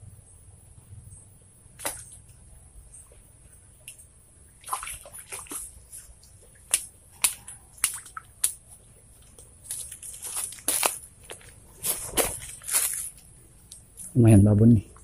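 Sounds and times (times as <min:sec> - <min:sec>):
fish splashing in water: 0:04.6 - 0:08.6.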